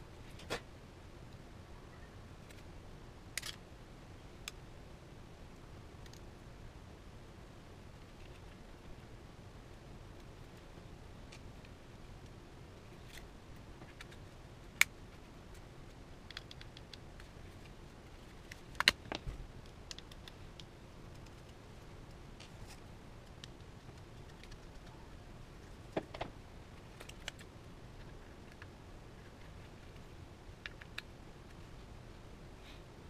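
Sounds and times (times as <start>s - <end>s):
faint steady hiss: 0.0s - 33.0s
small sharp clicks and taps: 16.2s - 17.3s, 18.5s - 21.6s.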